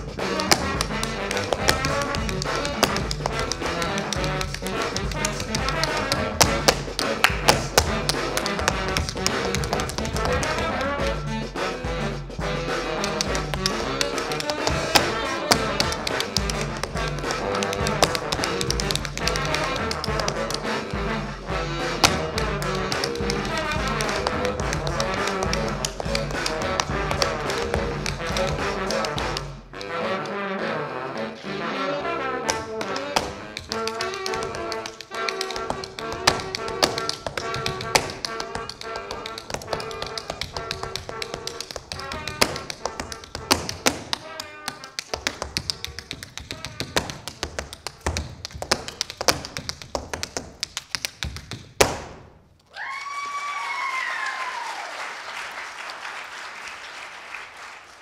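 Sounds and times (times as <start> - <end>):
tap shoes on stage floor: 0.0 - 30.3, 32.4 - 54.6
brass-led recorded music: 0.0 - 47.4
audience applauding: 52.8 - 58.0.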